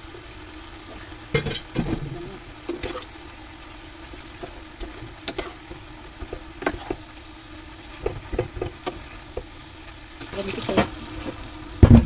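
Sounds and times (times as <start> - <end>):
faint sizzle: 0.0 - 12.0
wooden spoon scraping a pan: 2.6 - 3.2, 4.0 - 7.2, 7.9 - 9.5.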